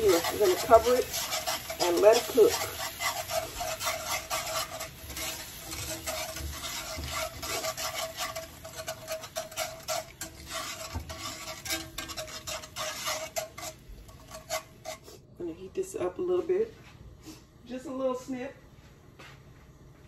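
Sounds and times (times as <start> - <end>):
whisk scraping a pan: 0.0 - 15.3.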